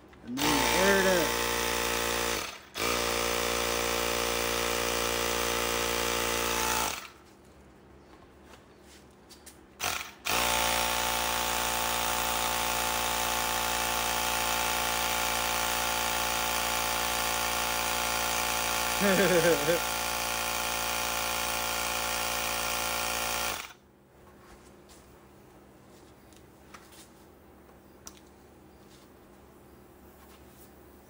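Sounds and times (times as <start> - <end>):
air compressor running: 0.3 - 7.2, 9.8 - 23.8.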